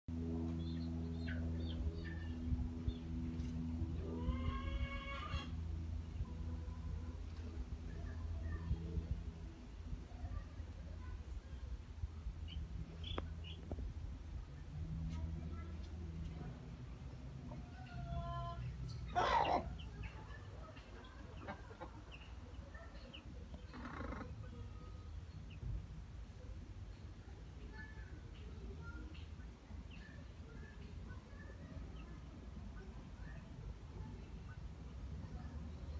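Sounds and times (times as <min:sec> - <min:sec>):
low steady rumble: 0:00.1 - 0:35.9
steady low hum: 0:00.1 - 0:35.9
baby chicks peeping: 0:12.4 - 0:13.8, 0:17.8 - 0:25.8.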